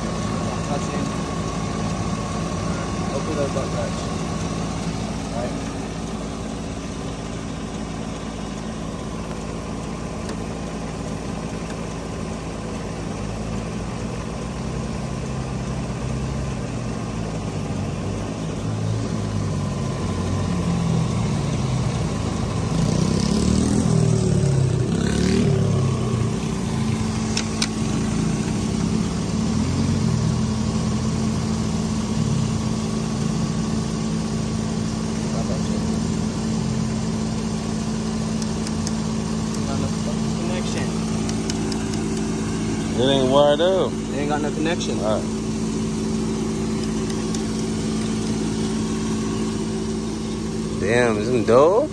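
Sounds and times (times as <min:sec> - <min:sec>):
pickup truck engine idling: 0:00.0 - 0:51.9
sharp clicks: 0:38.4 - 0:39.7, 0:41.2 - 0:42.3, 0:46.7 - 0:48.4.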